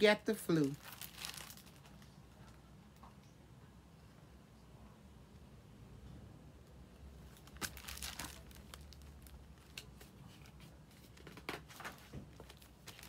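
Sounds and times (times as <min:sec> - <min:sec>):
book pages rustling: 0:07.3 - 0:13.0.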